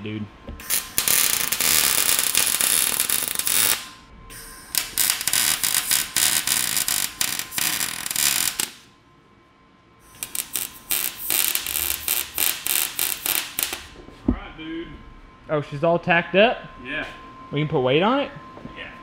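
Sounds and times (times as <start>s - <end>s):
welder arc crackling: 0.6s - 4.0s, 4.6s - 8.9s, 10.1s - 14.0s.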